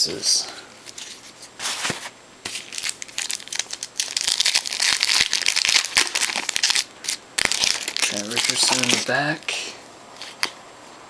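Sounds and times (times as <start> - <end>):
foil wrapper crinkling: 0.9 - 9.5.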